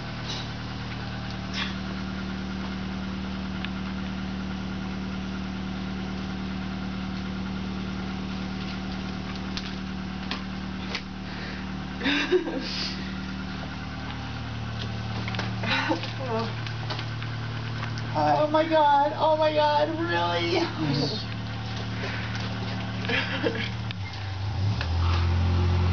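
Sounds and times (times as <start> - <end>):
low mechanical hum: 0.0 - 25.9.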